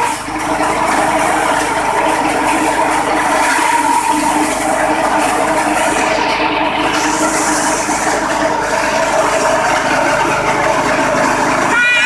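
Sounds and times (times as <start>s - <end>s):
petrol engine running: 0.0s - 12.0s.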